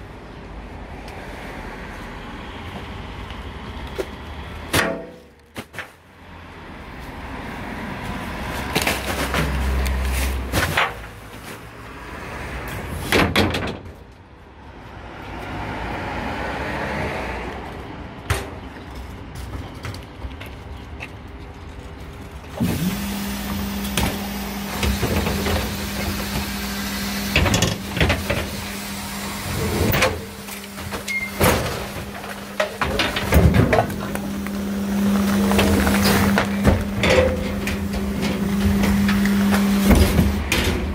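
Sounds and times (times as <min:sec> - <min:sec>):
garbage truck compactor: 0:08.4 - 0:11.6, 0:22.5 - 0:40.9
hydraulic hum: 0:22.6 - 0:40.9.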